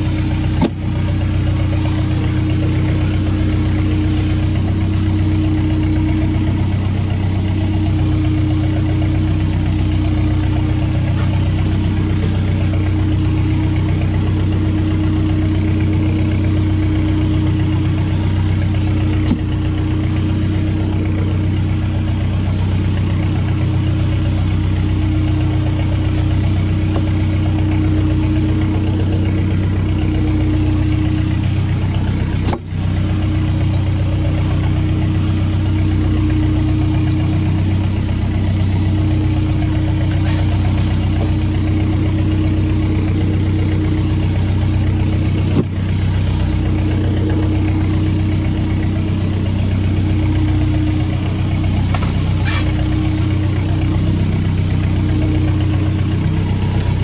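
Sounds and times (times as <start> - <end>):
boat engine running: 0.0 - 57.0.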